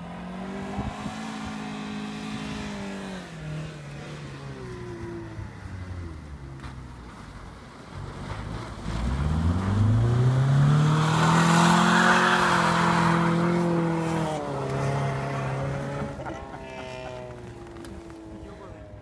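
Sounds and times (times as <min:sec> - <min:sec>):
car engine revving hard: 0:08.8 - 0:17.8.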